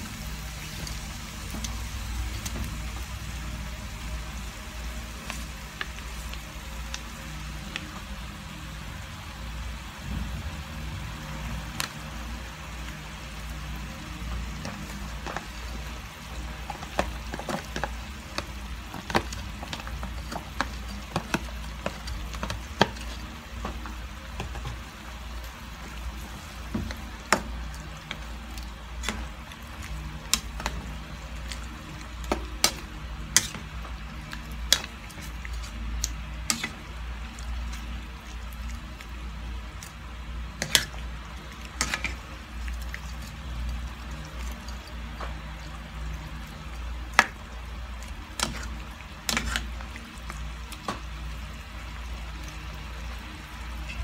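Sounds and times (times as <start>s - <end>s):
food frying in a pan: 0.0s - 54.0s
spatula stirring pan: 11.8s - 54.0s.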